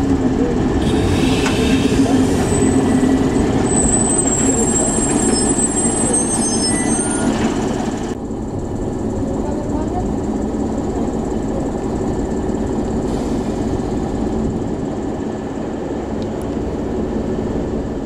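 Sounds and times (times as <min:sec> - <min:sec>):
diesel train engine running: 0:00.0 - 0:18.0
train brakes squealing: 0:00.8 - 0:07.8.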